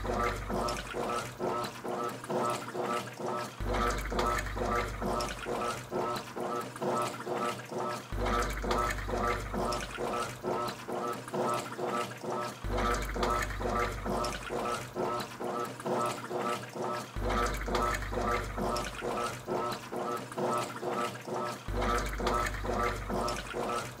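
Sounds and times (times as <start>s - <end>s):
low motor hum: 0.0s - 1.5s, 3.6s - 6.2s, 21.7s - 24.0s
washing machine sloshing water: 0.0s - 24.0s.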